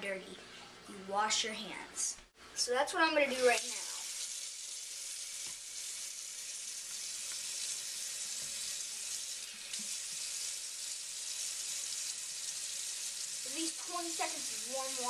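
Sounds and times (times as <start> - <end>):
faucet running into sink: 3.4 - 15.0.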